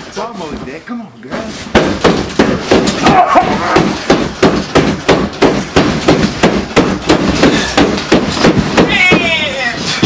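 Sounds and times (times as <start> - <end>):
headboard banging against wall: 1.4 - 10.0.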